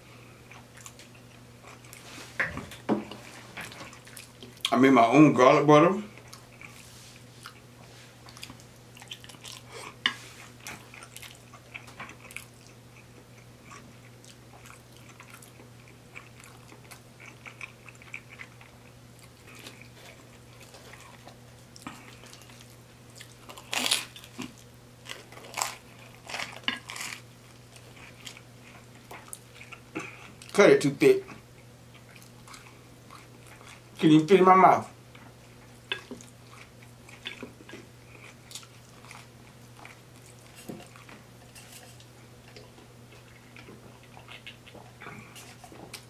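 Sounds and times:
quiet chewing: 0.1 - 4.8, 6.1 - 30.6, 31.2 - 34.1, 34.8 - 46.0.

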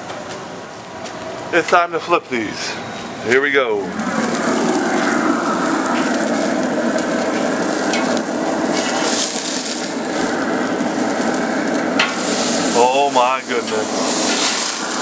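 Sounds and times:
burger patties sizzling on grill: 2.0 - 15.0
metal spatula scraping grate: 12.0 - 15.0.

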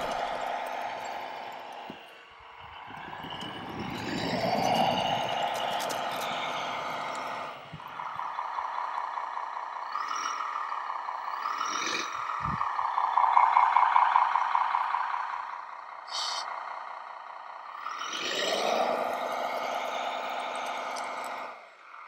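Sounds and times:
toy bulldozer motor whine: 0.0 - 9.0, 17.8 - 21.6.

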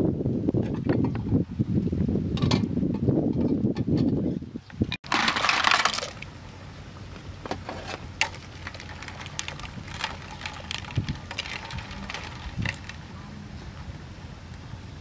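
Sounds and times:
metal ladle scraping pot: 7.7 - 13.0.

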